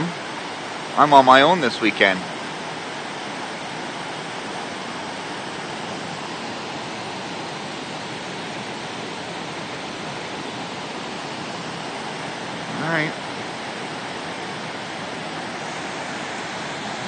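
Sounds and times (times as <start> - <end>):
rushing floodwater: 0.0 - 17.0.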